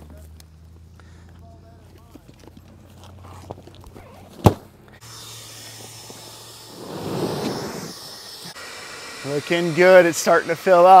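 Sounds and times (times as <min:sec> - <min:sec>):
electric air pump humming: 0:05.0 - 0:11.0
rush of air: 0:06.7 - 0:07.9.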